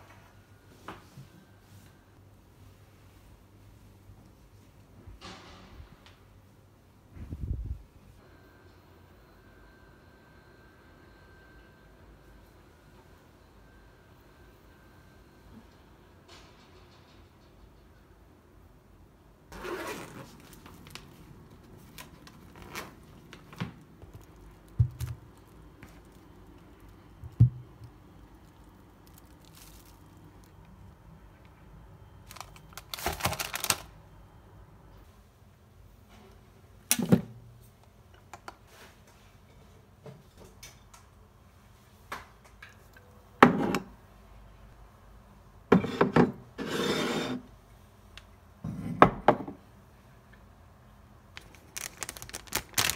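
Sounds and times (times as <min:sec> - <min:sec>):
crinkly packet rustling: 0:20.2 - 0:27.0, 0:28.3 - 0:30.6, 0:32.2 - 0:33.9, 0:51.4 - 0:52.9
objects knocking and thumping: 0:24.7 - 0:25.2.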